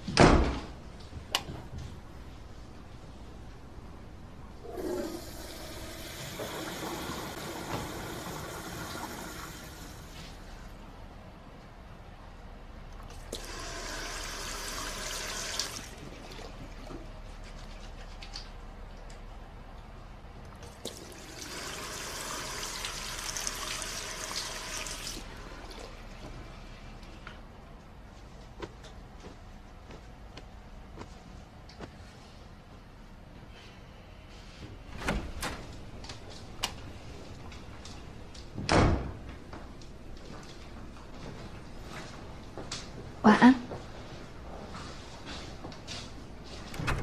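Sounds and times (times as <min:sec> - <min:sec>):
toilet flushing: 0:04.6 - 0:10.5, 0:13.2 - 0:16.9, 0:20.8 - 0:26.4
water running into sink basin: 0:20.9 - 0:25.9.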